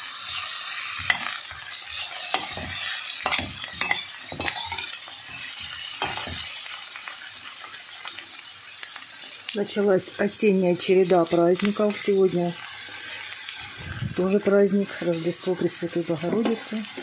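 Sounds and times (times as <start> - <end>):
vegetables sizzling in frying pan: 0.0 - 17.0
metal spatula scraping pan: 1.0 - 6.5.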